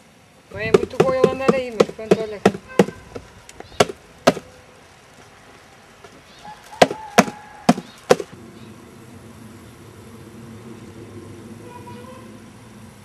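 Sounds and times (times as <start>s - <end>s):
low background noise: 0.0s - 13.0s
sharp knocks: 0.8s - 3.0s, 3.8s - 4.4s, 6.8s - 8.4s.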